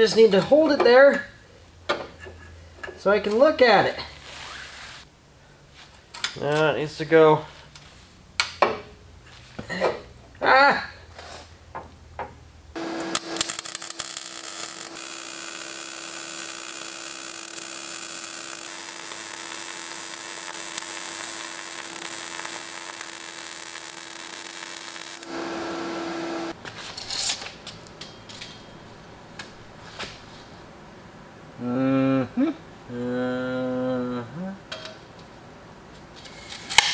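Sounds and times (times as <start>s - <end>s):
welder crackling hiss: 12.8s - 26.5s.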